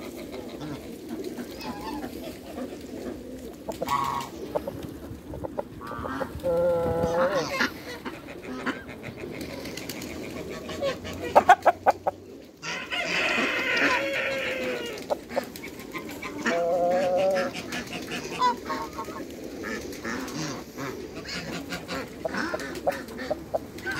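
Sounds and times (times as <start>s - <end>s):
geese honking: 0.0s - 4.7s, 10.2s - 23.9s.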